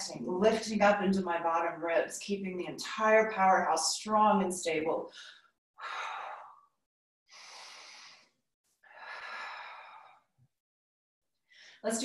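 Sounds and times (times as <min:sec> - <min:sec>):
woman breathing deeply: 0:07.3 - 0:10.3.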